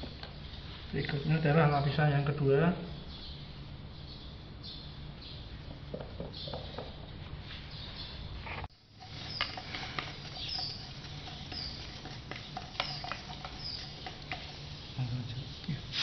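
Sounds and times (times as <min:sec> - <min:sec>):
paintbrushes dabbing resin: 0:08.9 - 0:16.0.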